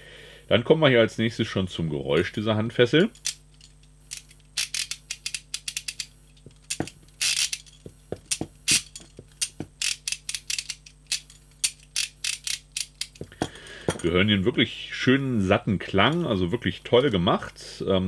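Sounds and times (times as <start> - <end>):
handcuff ratchet clicking: 3.1 - 14.1.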